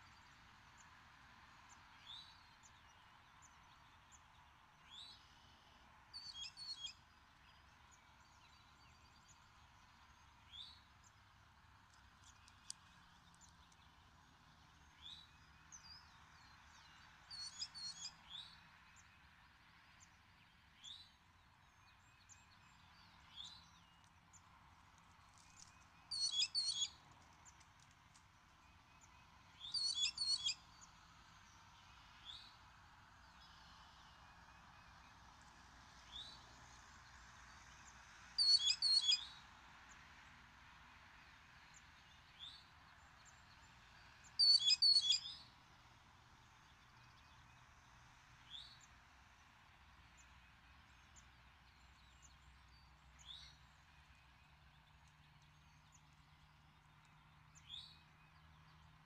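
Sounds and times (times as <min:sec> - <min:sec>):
songbird singing: 0:12.2 - 0:19.3, 0:25.3 - 0:27.6, 0:28.6 - 0:31.6, 0:38.4 - 0:39.4, 0:41.8 - 0:45.5, 0:50.1 - 0:59.0.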